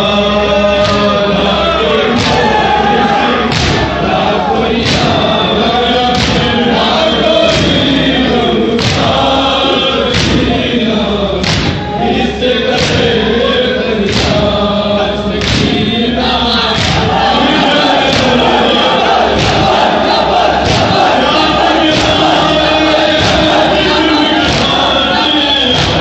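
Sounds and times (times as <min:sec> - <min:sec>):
crowd of men chanting: 0:00.0 - 0:26.0
hands thumping on chests: 0:16.8 - 0:26.0.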